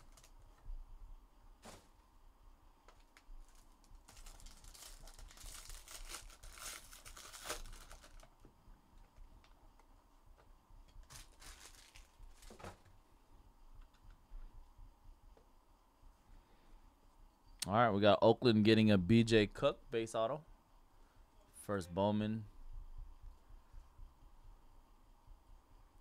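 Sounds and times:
foil wrapper tearing and crinkling: 0:00.0 - 0:00.4, 0:03.0 - 0:08.4, 0:11.0 - 0:12.8
handling sounds: 0:01.6 - 0:02.1.

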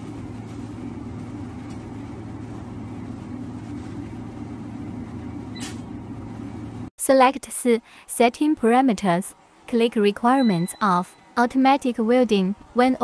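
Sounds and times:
low machine hum: 0:00.0 - 0:06.9.

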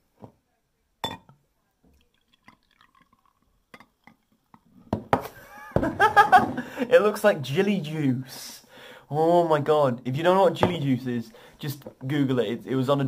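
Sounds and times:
glass clink: 0:01.0 - 0:01.4, 0:02.4 - 0:04.2
drink fizzing and trickling: 0:01.8 - 0:04.8
liquid pouring and splashing: 0:01.8 - 0:04.8.

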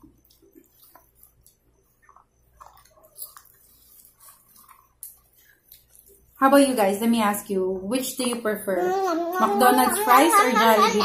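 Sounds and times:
person chewing fries: 0:00.1 - 0:06.4.

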